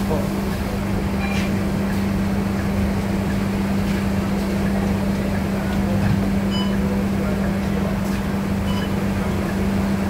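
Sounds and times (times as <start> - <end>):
bus diesel engine running: 0.0 - 10.0.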